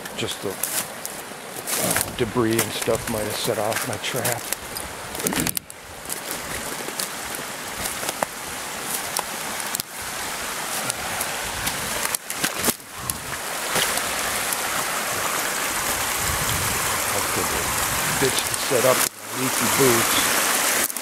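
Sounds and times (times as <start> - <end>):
stream water rushing: 0.0 - 21.0.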